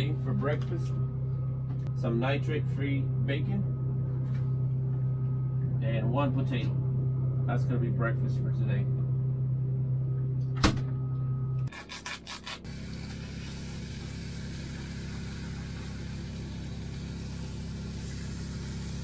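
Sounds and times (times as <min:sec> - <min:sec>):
air conditioner hum: 0:00.0 - 0:19.0
air hissing: 0:12.7 - 0:19.0.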